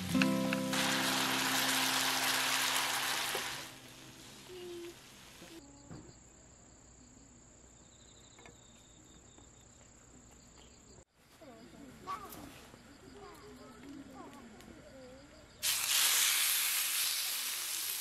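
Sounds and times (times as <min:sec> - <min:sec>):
loud hiss: 0:00.0 - 0:05.6, 0:15.6 - 0:18.0.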